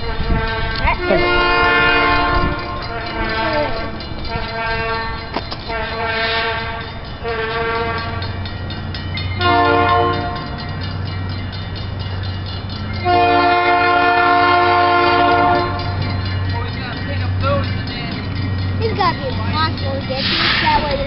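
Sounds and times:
locomotive air horn blasts: 0.0s - 8.4s, 9.4s - 10.6s, 13.0s - 16.1s, 20.2s - 20.8s
diesel engine low rumble: 0.0s - 21.0s.

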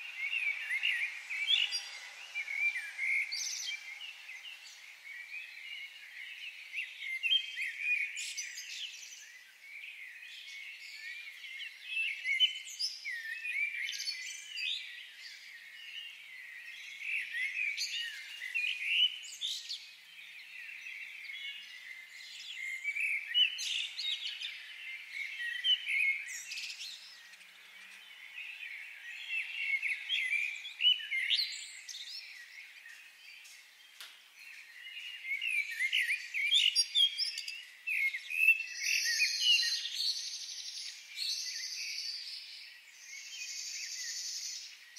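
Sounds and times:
birds chirping: 0.0s - 44.9s.

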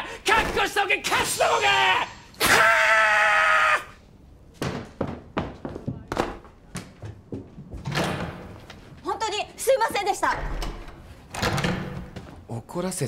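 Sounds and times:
man shouting: 0.0s - 3.9s
footsteps on floor: 4.6s - 9.2s.

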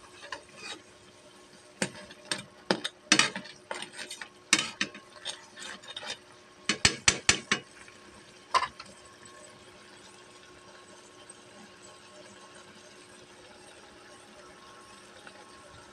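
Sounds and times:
spoon clinking and scraping pan: 0.0s - 0.9s, 1.8s - 7.7s, 8.5s - 8.9s.

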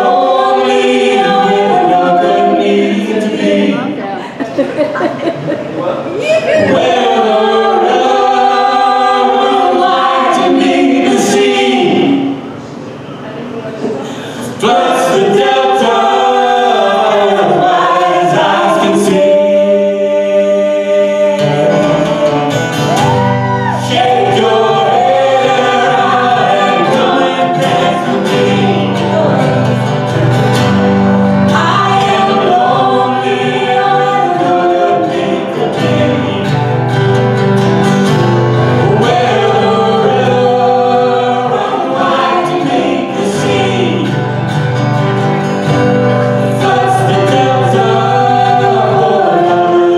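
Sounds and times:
keyboard: 0.0s - 13.4s
acoustic guitars: 0.0s - 49.9s
harmony voices: 0.0s - 49.9s
woman singing lead: 6.2s - 10.5s, 22.9s - 29.9s.

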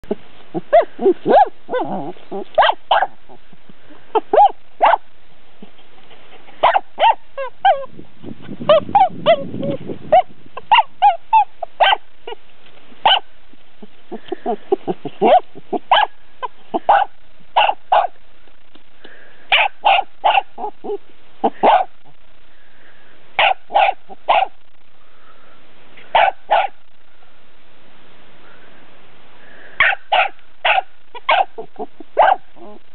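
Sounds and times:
rough low noisy sound: 0.0s - 32.9s
dog barking: 0.7s - 3.2s, 4.2s - 5.1s, 6.6s - 7.2s, 10.1s - 12.1s, 13.0s - 13.3s, 15.2s - 18.2s, 19.5s - 20.7s, 21.5s - 22.0s, 23.4s - 24.6s, 26.1s - 26.8s, 29.8s - 32.8s.

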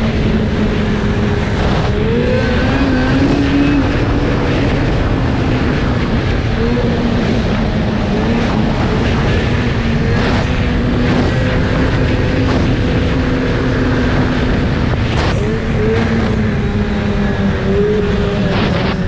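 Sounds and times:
snowmobile engine running: 0.0s - 19.0s.

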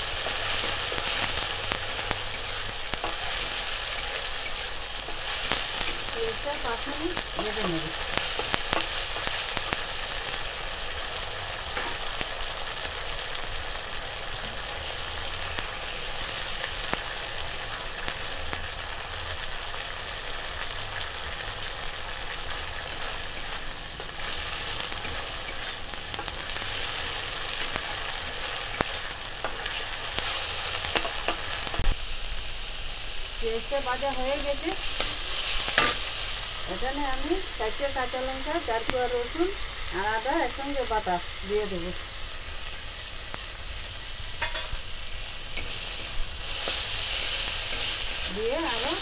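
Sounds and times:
onion paste sizzling in oil: 0.0s - 49.0s
metal spatula clicking and scraping: 0.2s - 6.7s, 22.5s - 31.8s, 35.0s - 36.0s.

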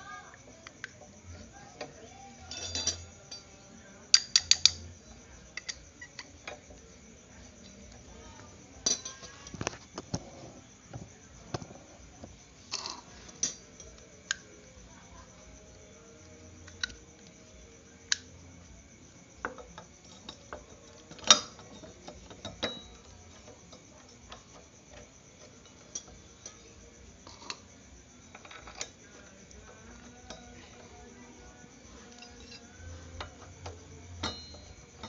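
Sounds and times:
small metal parts clicking: 1.8s - 6.8s, 8.8s - 10.2s, 12.7s - 14.5s, 15.3s - 18.4s, 19.4s - 27.7s, 28.3s - 31.2s, 32.0s - 35.0s.

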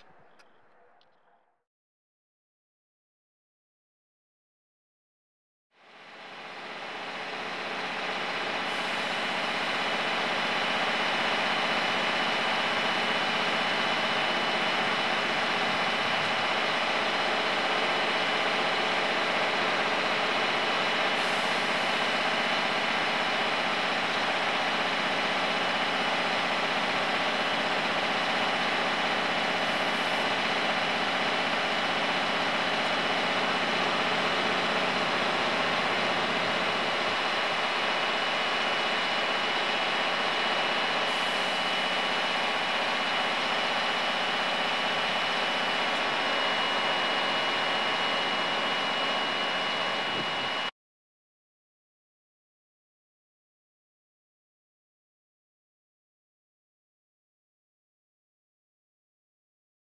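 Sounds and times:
truck diesel engine idling: 6.1s - 50.7s.

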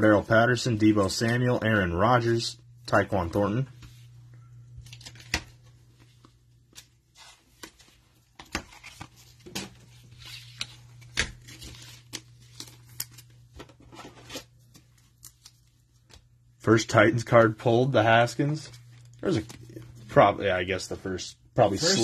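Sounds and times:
cards clicking and rustling: 4.8s - 16.3s.

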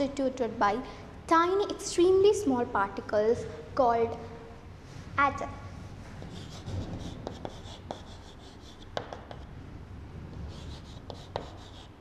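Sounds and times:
chalk scratching on chalkboard: 6.2s - 9.5s, 10.4s - 12.0s
chalk tapping board: 6.3s - 9.5s, 10.5s - 11.9s.

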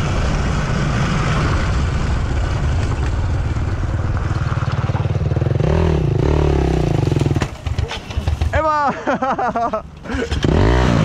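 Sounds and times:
dirt bike engine revving: 4.5s - 11.0s.

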